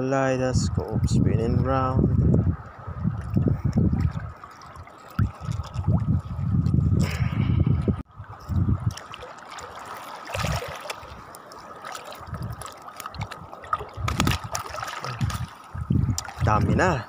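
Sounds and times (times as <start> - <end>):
seawater sloshing and trickling: 2.6 - 6.9, 8.1 - 17.0.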